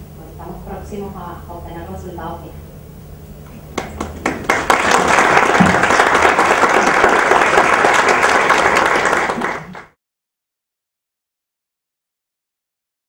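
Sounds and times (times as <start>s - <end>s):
audience applauding: 3.7s - 10.0s.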